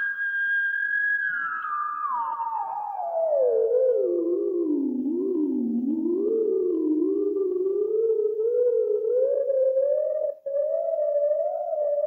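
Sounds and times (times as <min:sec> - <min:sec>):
wavering electronic tone: 0:00.0 - 0:12.0.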